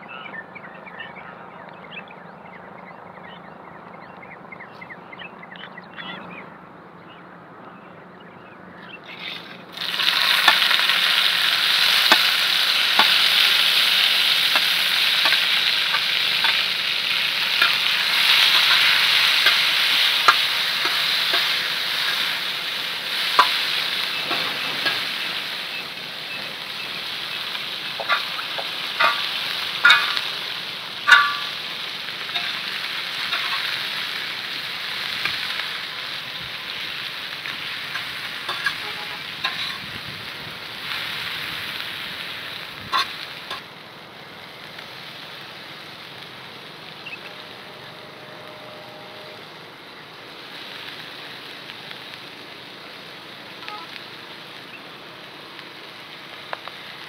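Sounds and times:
tomatoes sizzling on hot pan: 9.0 - 57.0
sharp pops and crackles: 9.1 - 47.6, 50.2 - 57.0.

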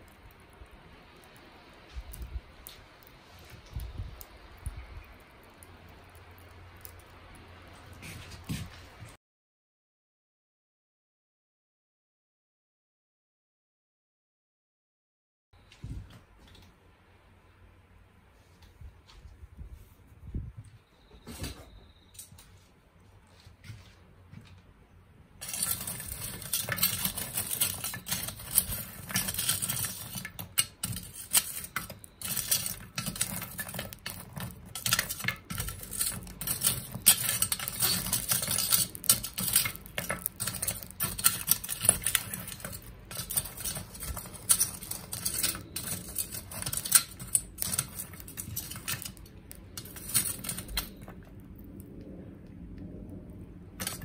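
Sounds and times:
charcoal fire crackling and popping: 0.0 - 9.2, 25.4 - 54.0.

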